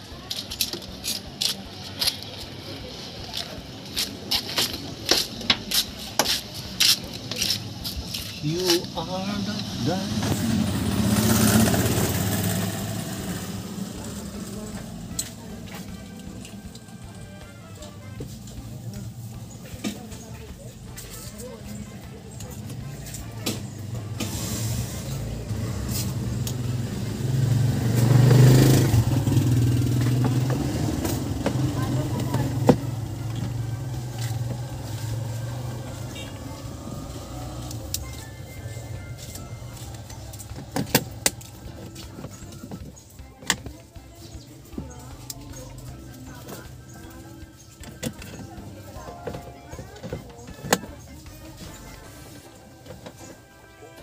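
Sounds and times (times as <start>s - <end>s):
footsteps on gritty concrete: 0.0s - 10.4s, 29.7s - 54.0s
engine humming: 0.0s - 54.0s.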